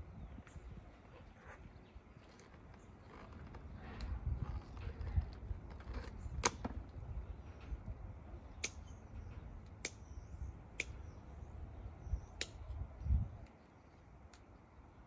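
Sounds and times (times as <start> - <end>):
low handling rumble: 0.0 - 8.4
pruning shears snipping: 8.6 - 9.0, 10.7 - 11.0.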